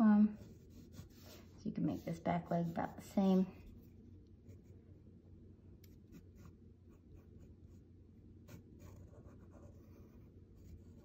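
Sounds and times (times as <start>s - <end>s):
pencil scratching on paper: 0.3s - 3.8s, 5.9s - 11.0s.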